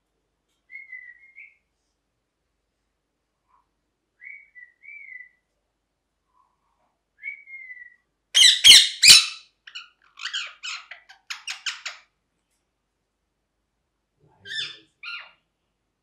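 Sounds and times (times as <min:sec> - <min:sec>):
parakeet whistling: 0:04.2 - 0:05.3, 0:07.2 - 0:09.4
parakeet screeching and squawking: 0:08.4 - 0:12.1, 0:14.4 - 0:15.4.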